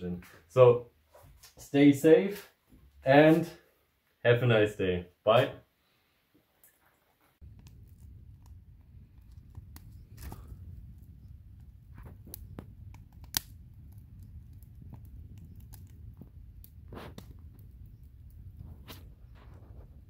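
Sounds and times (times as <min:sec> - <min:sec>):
campfire crackling and popping: 0:07.4 - 0:20.0
low fire rumble: 0:07.4 - 0:20.0.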